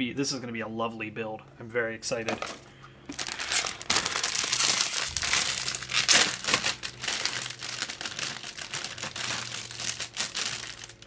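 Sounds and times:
plastic bags crinkling: 2.3 - 11.0.

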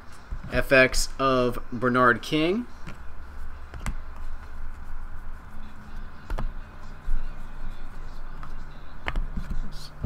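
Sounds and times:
steady low hum: 0.0 - 10.0
trading cards flipped through: 2.8 - 5.6.

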